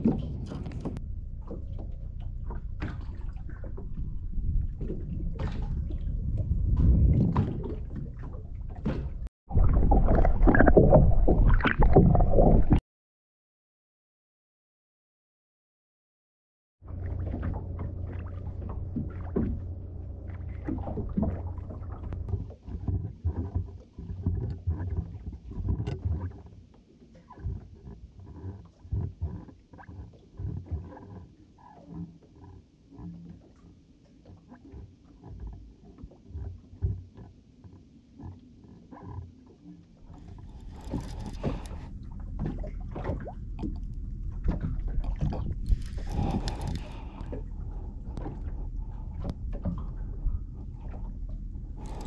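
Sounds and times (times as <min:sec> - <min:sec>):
water around a boat: 0:00.0 - 0:12.8, 0:16.8 - 0:52.0
wind rumbling: 0:00.0 - 0:12.8, 0:40.0 - 0:52.0.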